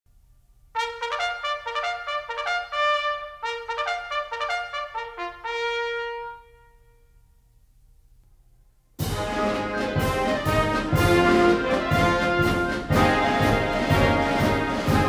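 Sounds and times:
brass melody: 0:00.7 - 0:07.4, 0:09.0 - 0:15.0
faint low hum: 0:06.4 - 0:09.0.

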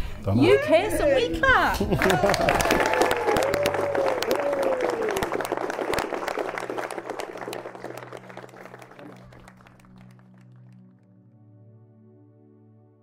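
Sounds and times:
crowd applauding: 0:01.8 - 0:11.1
person whooping: 0:02.0 - 0:05.5.

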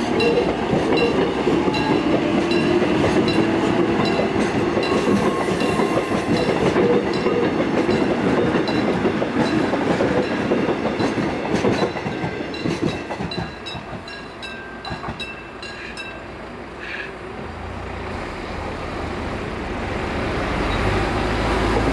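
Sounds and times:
train wheels clacking over rail joints: 0:00.0 - 0:16.2.

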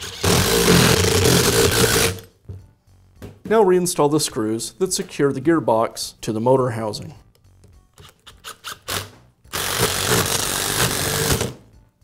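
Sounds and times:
impact driver running screw: 0:00.0 - 0:02.3, 0:08.0 - 0:11.6.

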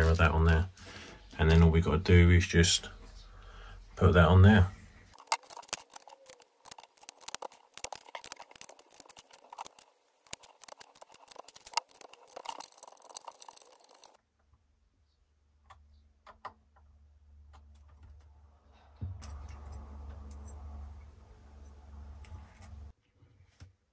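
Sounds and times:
small parts clicking and rustling: 0:05.2 - 0:14.2
low hum: 0:18.2 - 0:22.9.

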